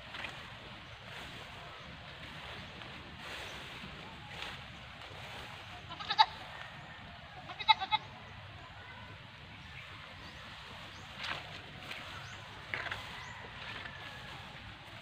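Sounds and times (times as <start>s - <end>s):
goat bleating: 5.8s - 6.4s, 7.4s - 8.2s.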